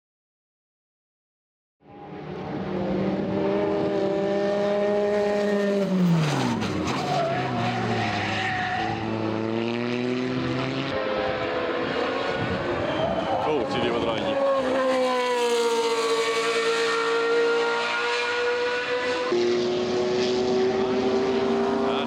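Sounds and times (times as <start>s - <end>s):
racing car engine revving: 2.1s - 22.0s.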